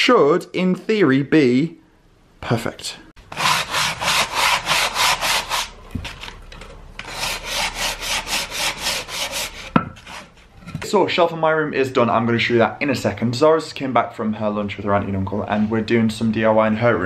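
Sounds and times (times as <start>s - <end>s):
sandpaper rubbing on wood: 3.4s - 5.8s, 7.1s - 10.3s
knock: 9.8s - 10.0s.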